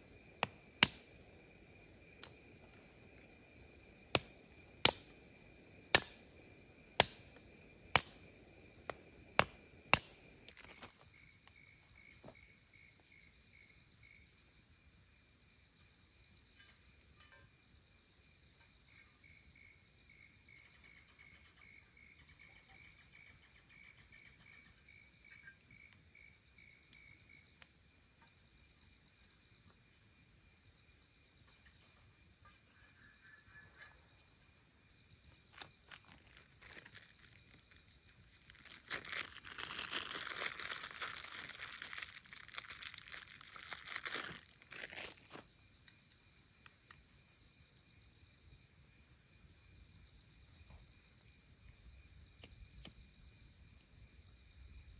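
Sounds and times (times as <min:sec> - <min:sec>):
insect chirping: 0:00.0 - 0:54.9
small handling noises: 0:10.4 - 0:12.4, 0:35.2 - 0:46.0.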